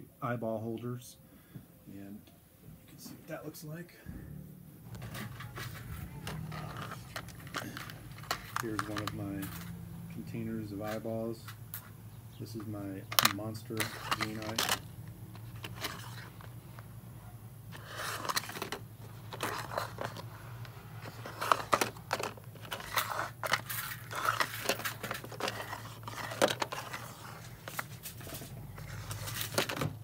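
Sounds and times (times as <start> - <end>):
plastic drawers sliding: 4.9 - 11.6, 12.6 - 16.8, 17.7 - 30.0.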